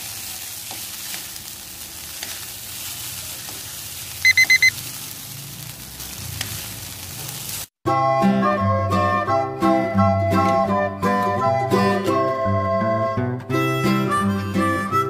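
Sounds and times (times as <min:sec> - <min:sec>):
noodles sizzling in a wok: 0:00.0 - 0:07.8
quick electronic beeps: 0:04.2 - 0:04.8.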